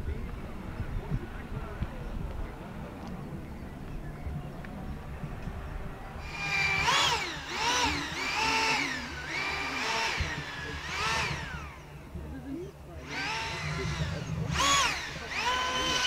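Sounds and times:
model car motor whining: 0:06.2 - 0:12.0, 0:13.0 - 0:16.0.

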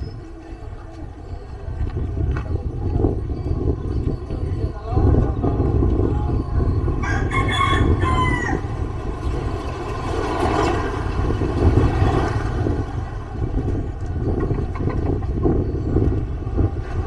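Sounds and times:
low engine rumble: 0:00.0 - 0:17.0
motorcycle sidecar passing: 0:00.0 - 0:17.0
rooster crowing: 0:07.0 - 0:08.9.

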